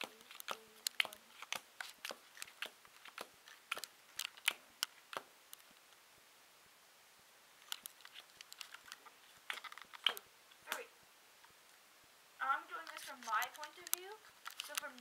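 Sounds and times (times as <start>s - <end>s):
playing cards clicking on table: 0.0s - 5.3s, 8.5s - 10.8s.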